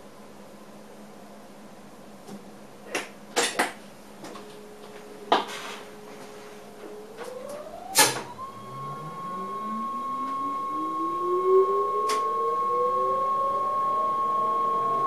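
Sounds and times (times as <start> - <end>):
electric train motor whine: 6.8 - 15.0.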